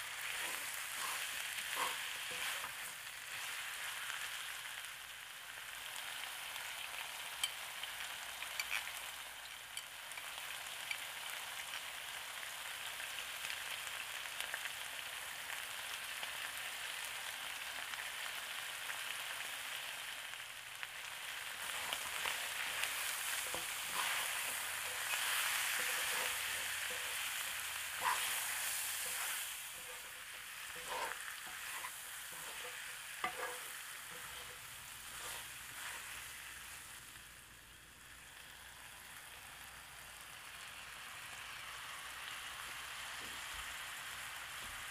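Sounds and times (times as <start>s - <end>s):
meat sizzling in hot oil: 0.0s - 44.9s
spatula scraping pan: 0.1s - 4.0s, 8.5s - 8.8s, 21.4s - 36.4s.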